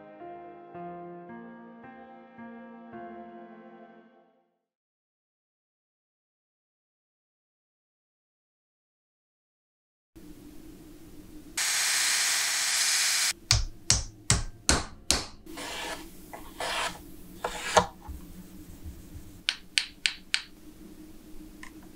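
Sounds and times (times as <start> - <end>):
sharp knife cuts: 15.5 - 18.0
tool scraping wood: 15.5 - 18.2
soft wood shaving strokes: 15.5 - 18.3.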